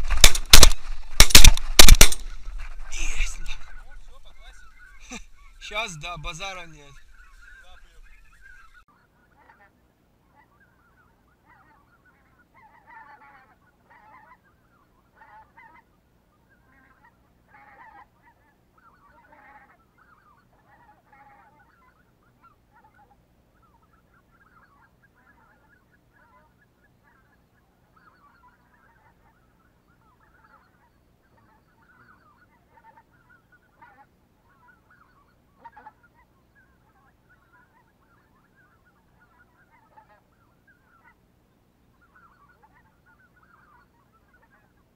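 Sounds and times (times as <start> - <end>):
distant geese honking: 0.0 - 44.9.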